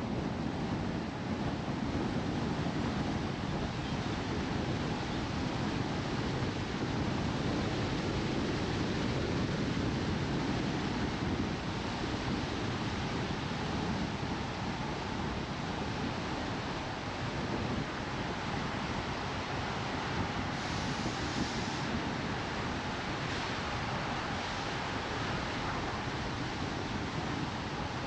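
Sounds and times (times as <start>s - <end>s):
wind blowing over microphone: 0.0s - 28.0s.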